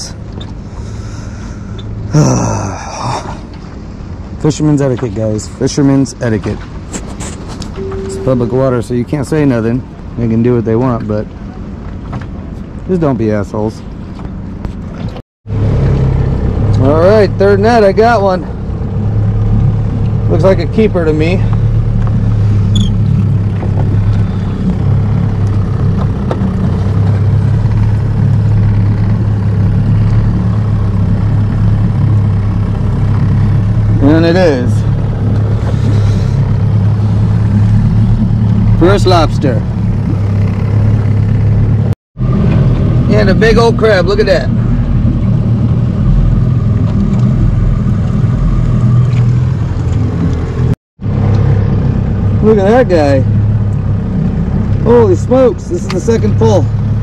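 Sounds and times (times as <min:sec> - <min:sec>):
boat motor idling: 0:03.4 - 0:15.0, 0:15.6 - 0:57.0.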